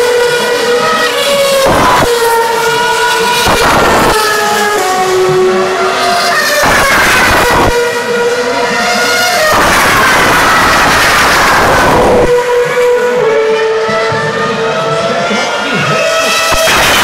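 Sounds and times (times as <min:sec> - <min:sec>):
racing car engines: 0:00.0 - 0:17.0
racing car passing by: 0:00.0 - 0:17.0.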